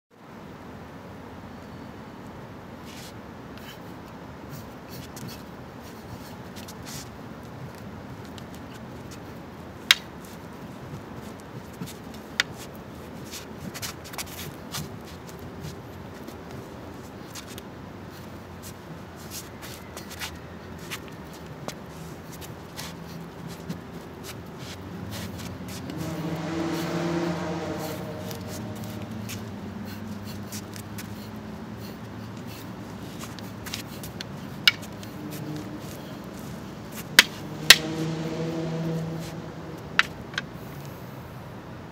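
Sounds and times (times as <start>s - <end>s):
steady low background noise: 0.1s - 41.9s
sticks swishing through air: 2.8s - 41.0s
vehicle engine passing: 21.9s - 41.2s.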